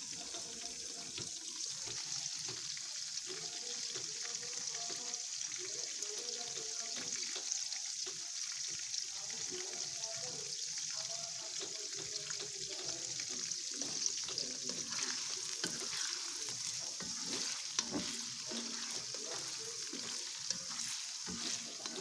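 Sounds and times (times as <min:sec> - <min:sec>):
tofu sizzling in hot oil: 0:00.0 - 0:22.0.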